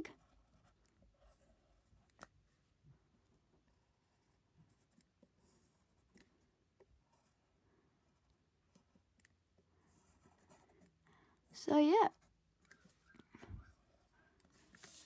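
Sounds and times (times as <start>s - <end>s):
pencil scratching on paper: 9.8s - 11.0s.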